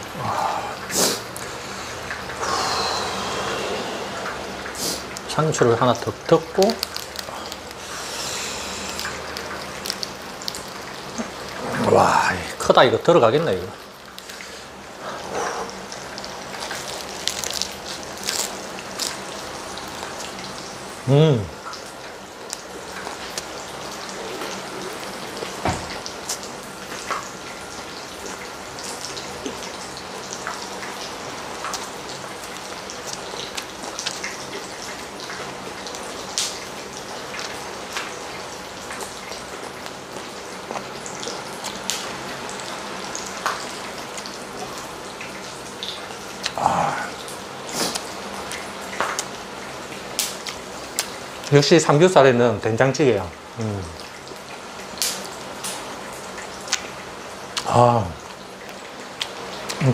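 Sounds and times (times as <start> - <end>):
pork sizzling on a griddle: 0.4 - 59.9
person chewing crunchy lettuce: 6.5 - 12.5, 14.0 - 20.5, 31.5 - 36.5, 38.9 - 42.7, 45.8 - 49.4.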